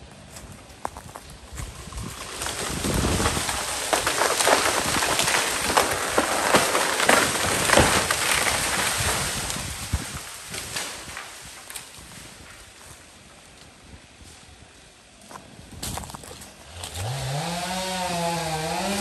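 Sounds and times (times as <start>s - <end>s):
dry branches crackling and snapping: 0.1s - 19.0s.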